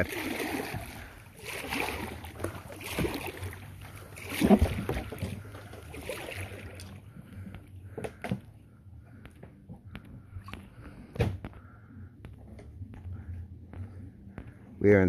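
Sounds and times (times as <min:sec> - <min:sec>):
kayak paddle splashing: 0:00.0 - 0:08.2.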